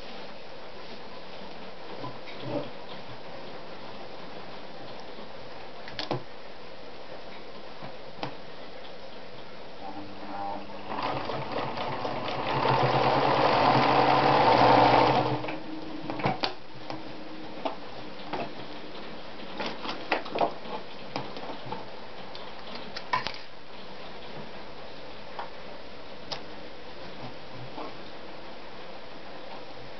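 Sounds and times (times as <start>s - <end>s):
sewing machine stitching: 10.3s - 15.6s.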